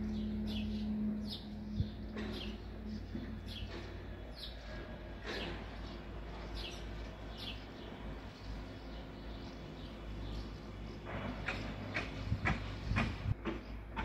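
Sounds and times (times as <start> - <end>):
low background rumble: 0.0 - 10.4
small bird chirping: 0.0 - 13.0.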